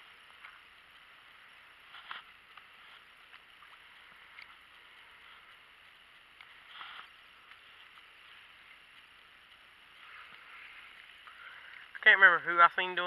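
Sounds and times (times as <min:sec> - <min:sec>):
faint outdoor hiss: 0:00.0 - 0:13.0
rustle: 0:00.0 - 0:13.0.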